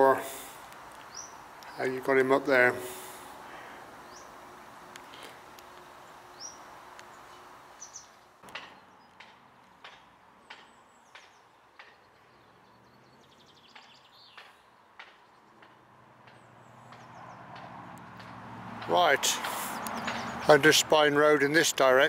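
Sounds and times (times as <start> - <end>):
faint steady rushing noise: 0.0 - 8.4
small birds chirping: 0.0 - 18.3, 18.9 - 22.0.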